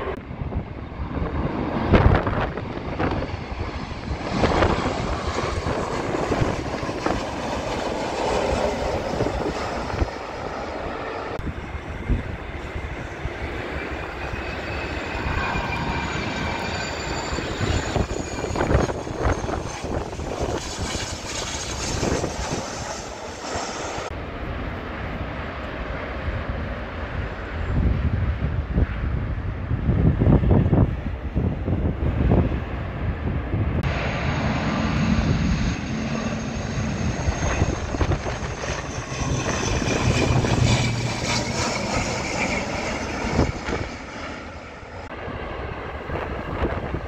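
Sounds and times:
jet engine whine: 0.0s - 47.0s
jet engines passing overhead: 0.0s - 47.0s.

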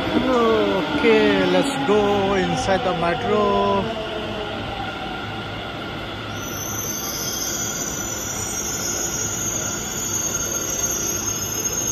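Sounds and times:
train rumbling: 0.0s - 11.9s
wheels squealing: 6.3s - 11.9s.

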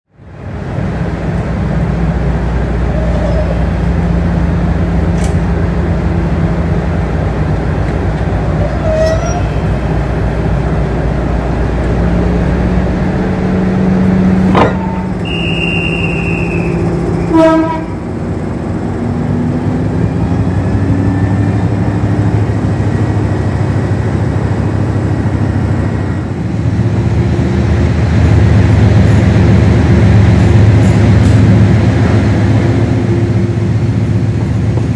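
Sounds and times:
diesel locomotive engine throbbing: 0.1s - 34.9s
short high whistle: 15.2s - 16.8s.

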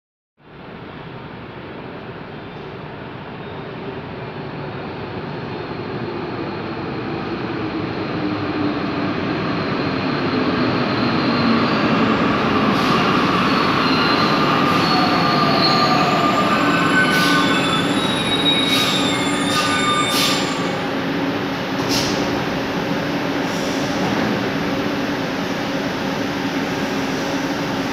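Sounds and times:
metro train running: 0.5s - 27.9s
high-pitched brake squeals: 12.8s - 20.8s.

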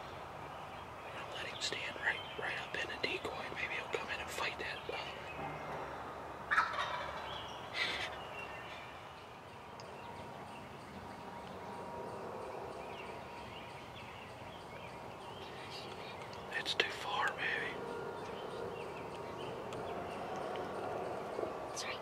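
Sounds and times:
quiet woodland background: 0.0s - 22.0s
turkey gobbling: 6.5s - 8.0s.

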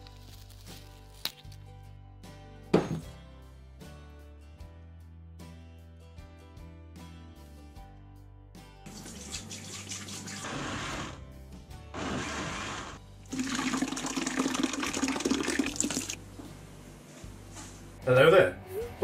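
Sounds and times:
background music: 0.0s - 19.0s
water pouring into plastic bucket: 8.9s - 11.2s, 13.3s - 16.2s.

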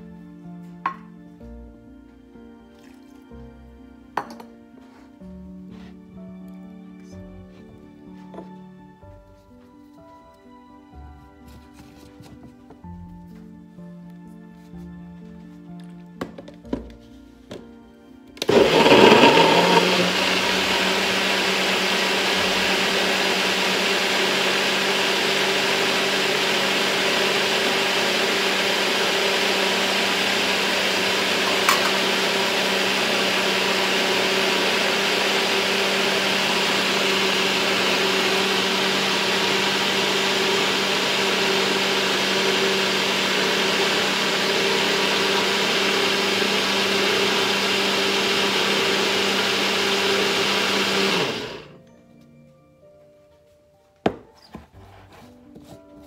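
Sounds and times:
blender motor blending: 18.4s - 51.8s.

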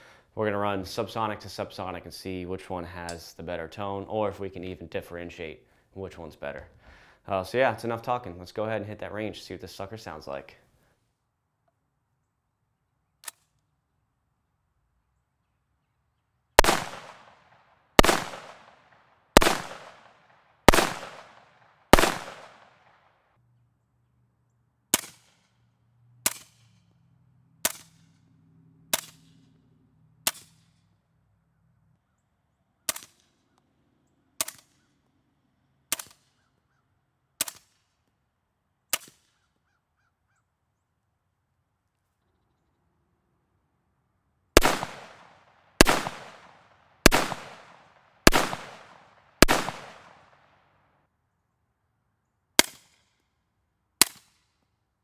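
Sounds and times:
rifle shots with ringing tail: 16.6s - 23.0s, 44.6s - 50.6s
suppressed rifle shots: 16.6s - 23.0s, 44.6s - 50.6s.

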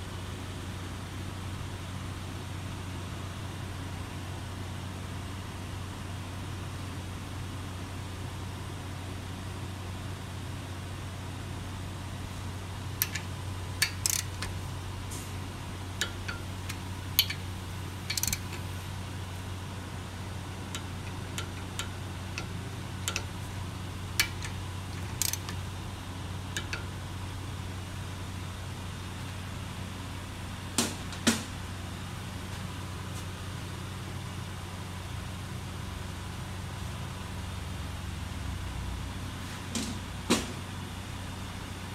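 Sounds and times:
steady low hum: 0.0s - 39.4s
torque wrench clicks: 13.0s - 14.6s, 16.0s - 18.8s, 20.7s - 25.7s, 26.5s - 27.0s.

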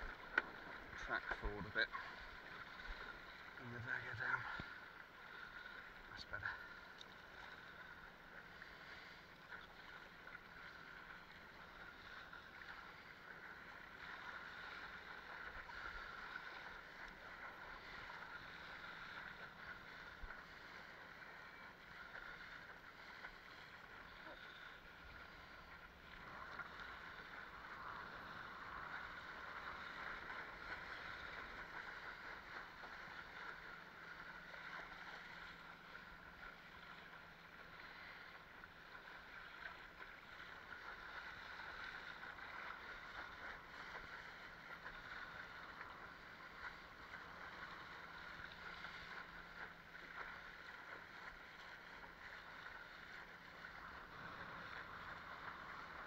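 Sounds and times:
water rushing along board hull: 0.0s - 56.0s.

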